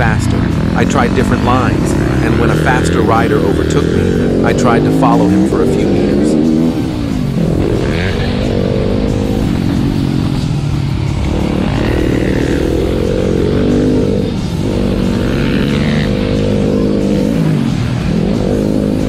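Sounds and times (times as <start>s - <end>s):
motocross bike engine revving: 0.0s - 19.0s.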